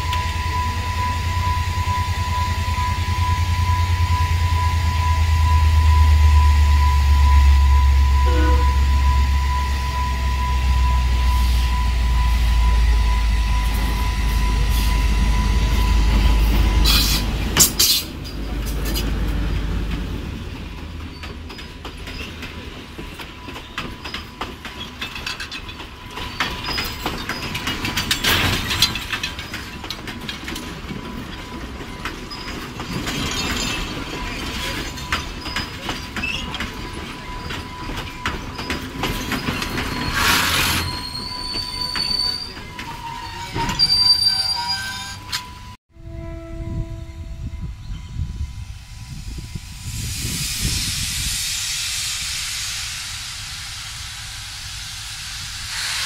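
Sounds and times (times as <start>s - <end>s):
thin high tone: 6.7s - 17.1s
wheels clicking over rail joints: 16.8s - 45.6s.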